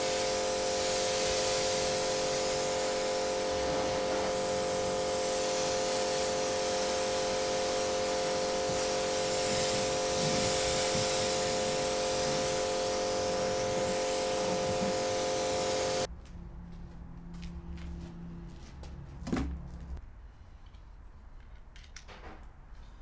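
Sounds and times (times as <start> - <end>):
motor hum: 0.0 - 16.1
pressure washer spray hissing: 0.0 - 16.1.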